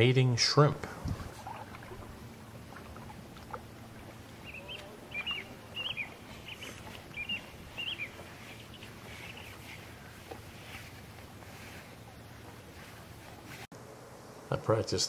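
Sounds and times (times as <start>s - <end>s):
bird chirping: 4.0s - 10.2s.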